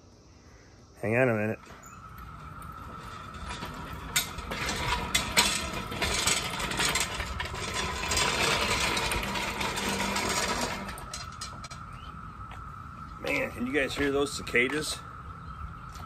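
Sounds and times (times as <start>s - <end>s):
cicadas droning: 0.0s - 16.0s
engine stand rolling and rattling: 1.6s - 12.2s.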